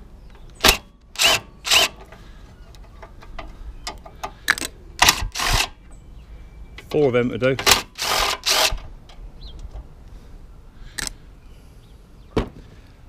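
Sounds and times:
cordless power gun bursts: 0.6s - 2.0s, 5.0s - 5.8s, 7.6s - 8.8s.

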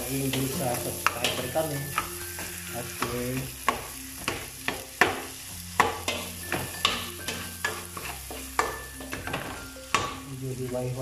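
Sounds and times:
butter sizzling: 0.0s - 11.0s
spatula scraping pot: 5.8s - 9.5s.

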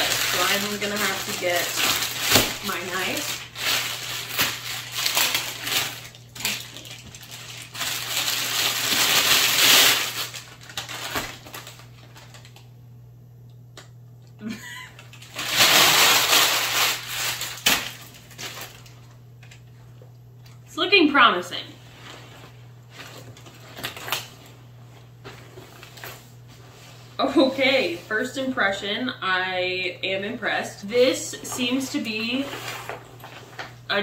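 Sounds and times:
plastic bag slit open: 0.0s - 12.4s, 15.1s - 19.0s
plastic bag crinkling: 0.0s - 12.6s, 14.6s - 19.2s.

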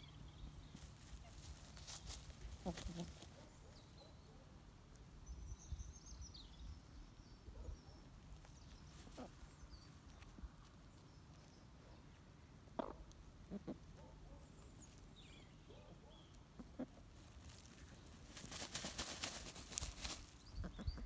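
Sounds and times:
hens clucking: 1.1s - 3.5s, 12.6s - 14.1s, 16.5s - 21.0s
faint high bird chirping: 20.1s - 21.0s.

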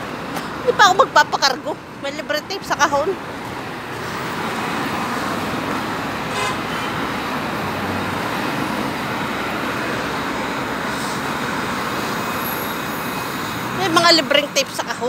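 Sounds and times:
city street traffic: 0.0s - 15.0s
short car horn toot: 6.3s - 6.9s.

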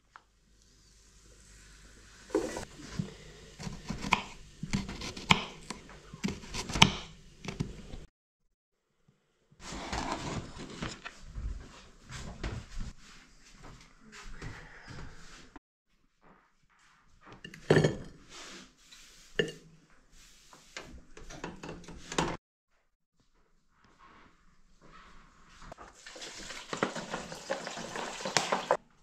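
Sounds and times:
kitchen clatter and knocks: 21.2s - 22.4s, 26.2s - 28.8s.

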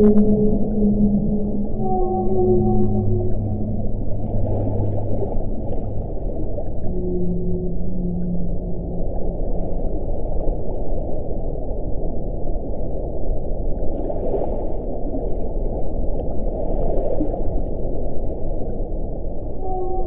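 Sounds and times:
whale moaning: 0.0s - 10.1s, 19.6s - 20.0s
rushing water swells: 0.0s - 20.0s
underwater rumble: 0.0s - 20.0s.

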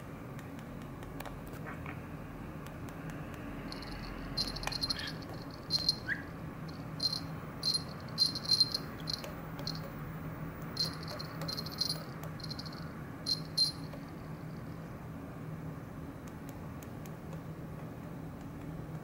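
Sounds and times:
low hum: 3.5s - 15.0s
budgerigar chirping: 4.7s - 6.4s.

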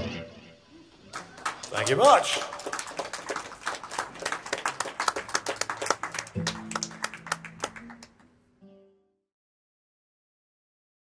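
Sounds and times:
audience applause: 1.0s - 8.3s.

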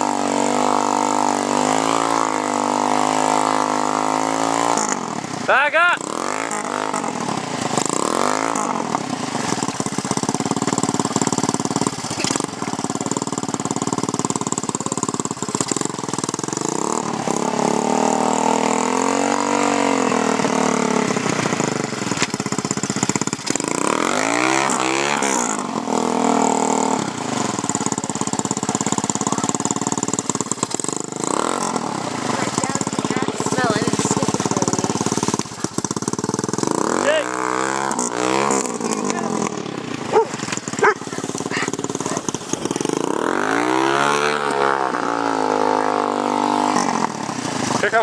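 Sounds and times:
four-stroke engine revving: 0.0s - 48.0s.

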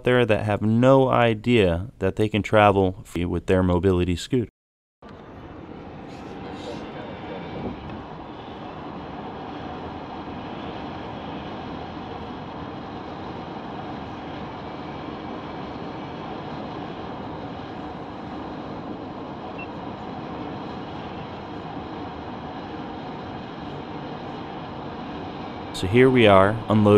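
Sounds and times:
car road and engine noise: 5.0s - 26.6s.

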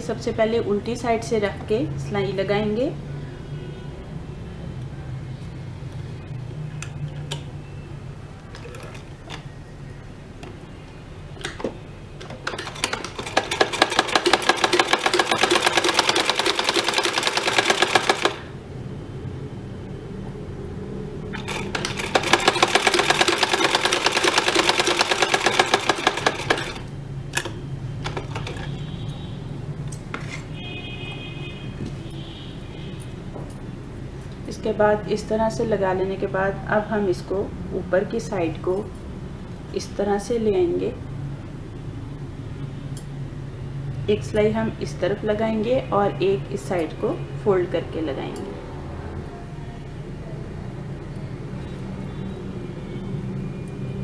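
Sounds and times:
sewing machine stitching: 12.3s - 18.6s, 21.4s - 26.9s.

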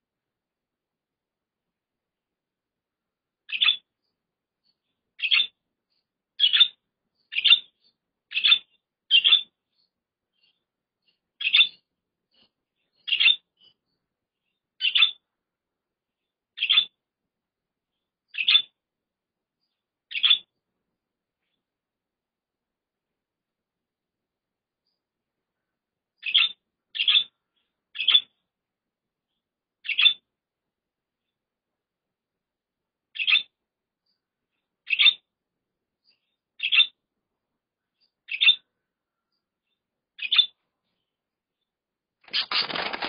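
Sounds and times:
budgerigar chirping: 3.5s - 3.9s, 5.2s - 5.6s, 6.4s - 9.6s, 11.4s - 11.8s, 13.0s - 13.7s, 14.8s - 15.2s, 16.6s - 17.0s, 18.3s - 18.7s, 20.1s - 20.5s, 26.2s - 28.4s, 29.8s - 30.2s, 33.2s - 33.5s, 34.8s - 35.2s, 36.6s - 37.0s, 38.3s - 38.7s, 40.2s - 40.6s, 42.3s - 43.0s.

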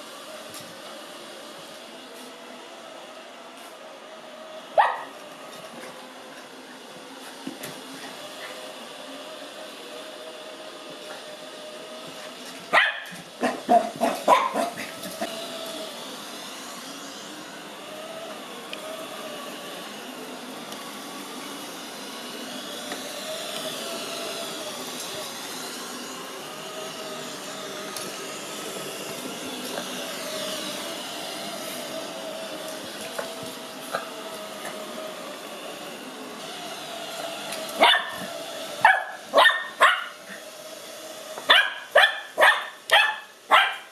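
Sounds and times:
robot vacuum running on carpet: 0.0s - 43.9s
puppy barking: 4.8s - 5.1s, 12.7s - 14.9s, 37.8s - 40.2s, 41.5s - 43.9s.

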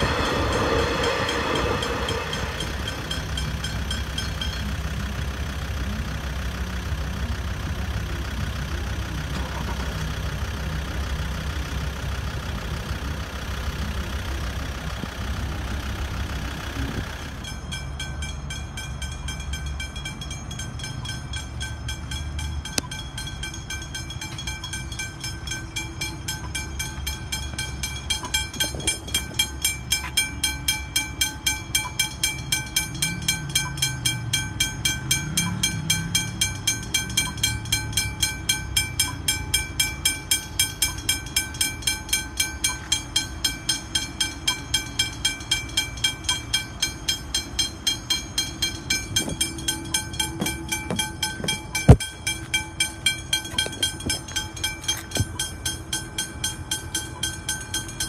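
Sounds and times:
low rumble: 0.0s - 18.6s
level crossing bell ringing: 17.3s - 58.0s.

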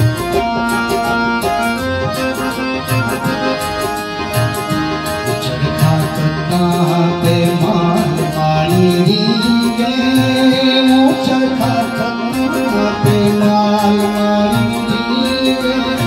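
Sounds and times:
instrumental accompaniment: 0.0s - 16.0s
man singing folk song: 5.4s - 16.0s.

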